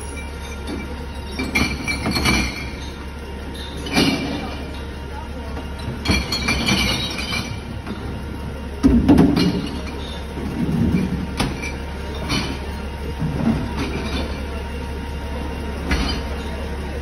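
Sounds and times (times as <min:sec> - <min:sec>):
garbage truck engine running: 0:00.0 - 0:17.0
wheelie bins clattering: 0:00.0 - 0:17.0.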